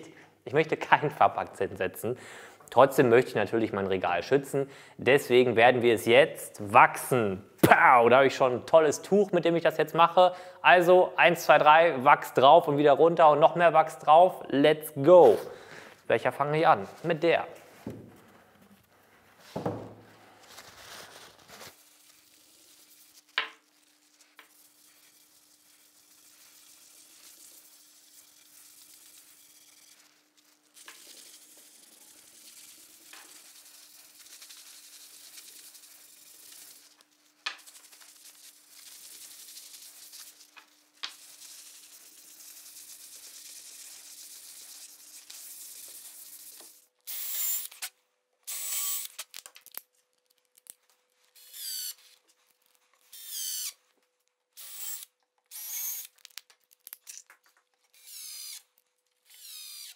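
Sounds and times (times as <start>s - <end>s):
cloth scrubbing wax into board: 16.8s - 46.9s.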